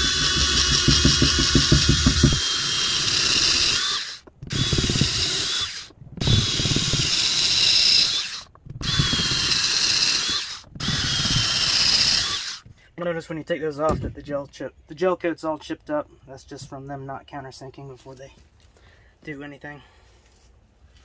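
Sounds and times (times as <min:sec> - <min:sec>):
cordless drill motor whining: 0:00.0 - 0:12.7
drill bit chattering: 0:00.0 - 0:12.7.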